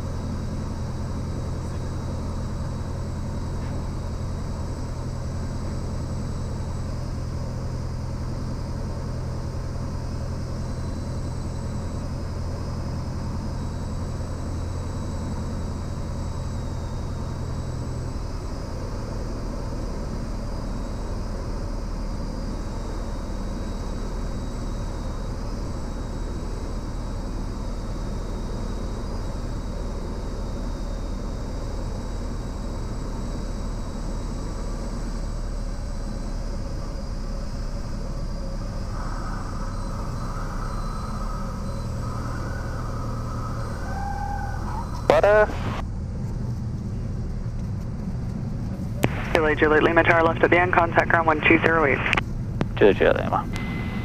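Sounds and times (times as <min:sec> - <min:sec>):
plane engine and propeller droning: 0:00.0 - 0:54.0.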